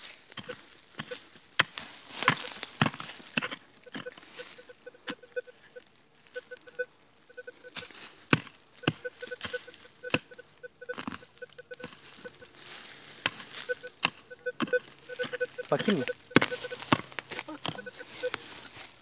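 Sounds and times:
hand tool chopping into stony soil: 0.3s - 4.3s, 7.8s - 9.5s, 13.2s - 17.9s
metal detector beeping: 0.4s - 1.3s, 2.2s - 2.7s, 3.4s - 8.0s, 8.8s - 19.0s.

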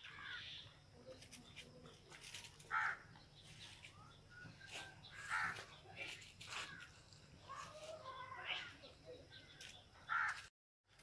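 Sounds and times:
crow cawing: 0.0s - 0.6s, 2.7s - 3.1s, 5.1s - 5.7s, 10.1s - 10.5s.

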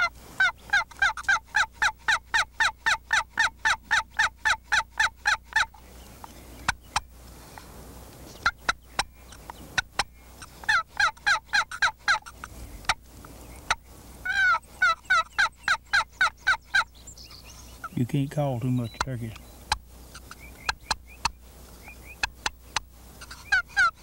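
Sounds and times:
box turkey call yelps: 0.0s - 5.9s, 8.3s - 13.0s, 13.6s - 18.0s, 18.8s - 24.0s.

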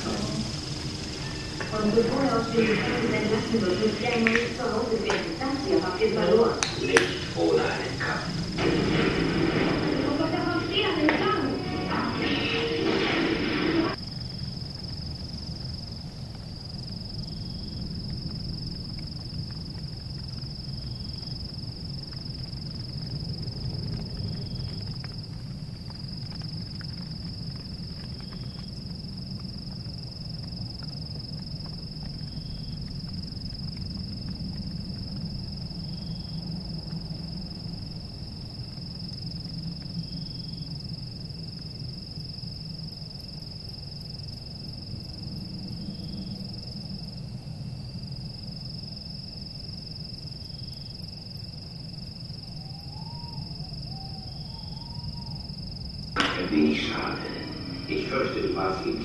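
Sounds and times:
high-pitched whine: 0.0s - 14.0s, 56.2s - 59.0s
low rumble: 0.0s - 14.0s, 56.2s - 59.0s.

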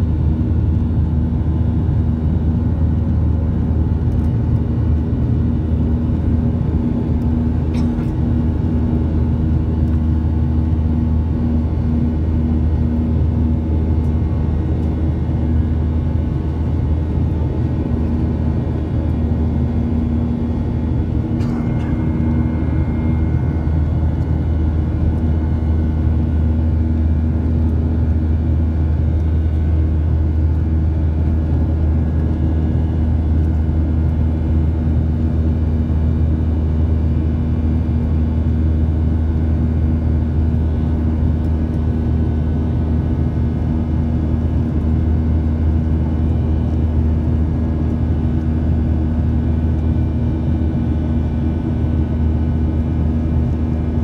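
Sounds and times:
jet engine drone in cabin: 0.0s - 54.0s
steady hum tone: 0.0s - 54.0s.

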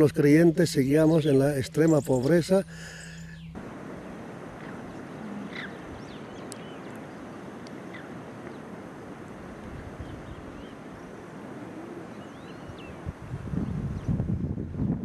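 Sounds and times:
faint bird chirps: 1.1s - 8.8s, 10.0s - 13.0s
steady rushing noise: 2.3s - 15.0s.

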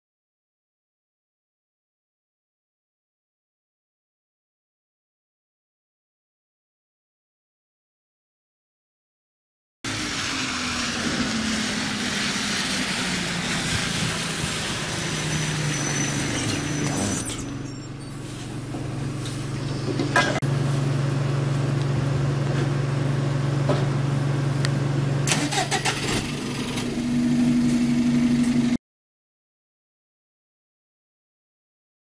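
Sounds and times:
diesel bus engine idling: 9.9s - 28.7s.

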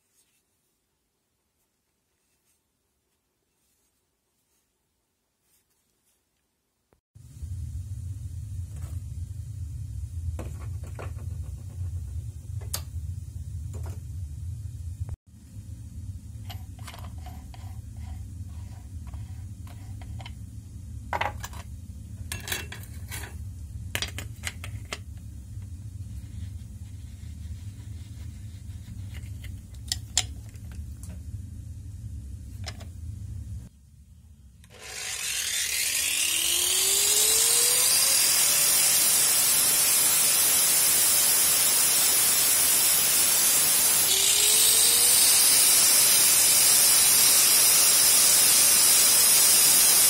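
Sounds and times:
steady low hum: 7.2s - 34.7s.

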